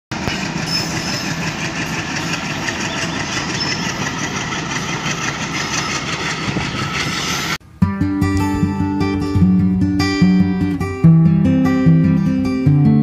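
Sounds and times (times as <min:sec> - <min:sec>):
diesel locomotive engine running: 0:00.1 - 0:07.7.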